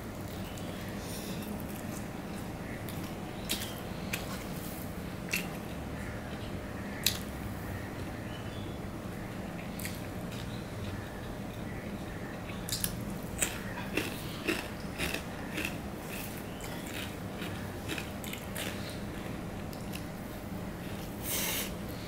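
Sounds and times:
person chewing: 0:12.5 - 0:20.1.

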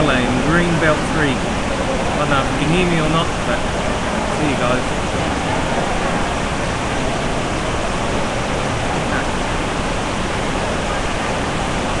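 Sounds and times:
heavy rain downpour: 0:00.0 - 0:12.0.

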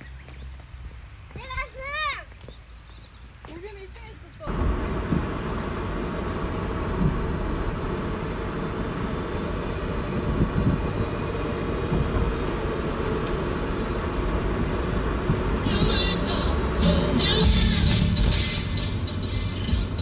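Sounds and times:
car road and engine rumble: 0:00.0 - 0:20.0.

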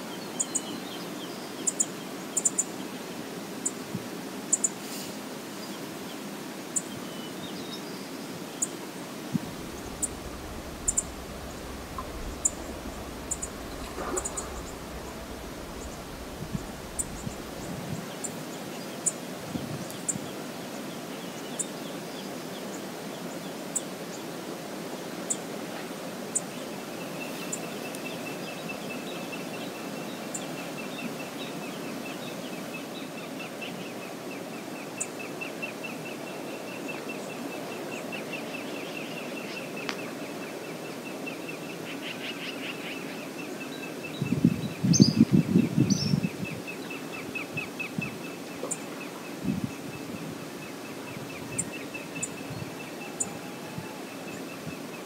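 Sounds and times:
outdoor background noise: 0:00.0 - 0:55.0
loud low rumble: 0:09.3 - 0:18.2
bird trilling: 0:09.6 - 0:17.7.

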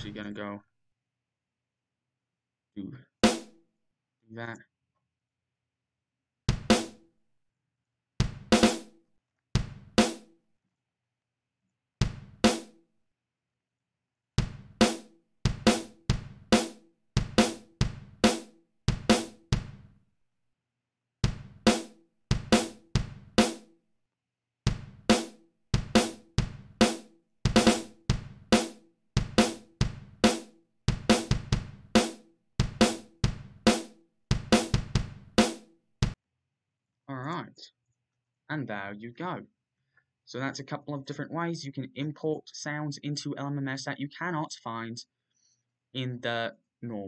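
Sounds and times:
drum machine beat: 0:00.0 - 0:00.3, 0:03.2 - 0:03.5, 0:06.5 - 0:07.0, 0:08.2 - 0:08.9, 0:09.6 - 0:10.2, 0:12.0 - 0:12.7, 0:14.4 - 0:19.9, 0:21.2 - 0:23.6, 0:24.7 - 0:36.2.

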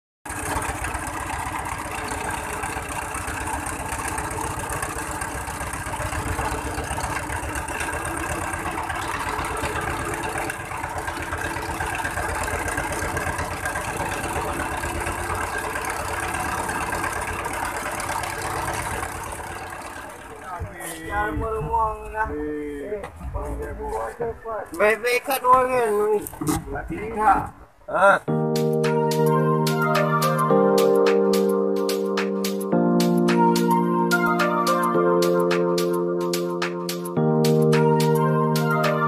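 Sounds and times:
boat engine running: 0:00.3 - 0:22.0.

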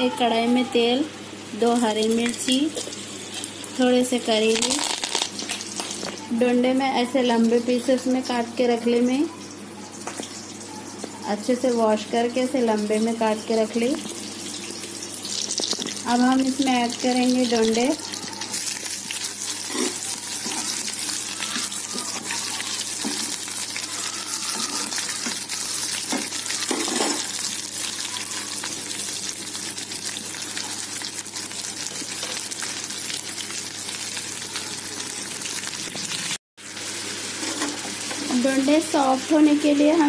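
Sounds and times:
vegetables sizzling in hot oil: 0:00.3 - 0:40.0.

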